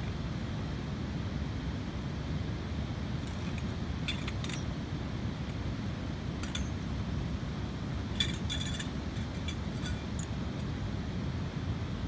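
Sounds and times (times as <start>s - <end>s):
tent pole sections clinking: 3.2s - 4.8s, 6.4s - 6.9s, 8.0s - 10.7s.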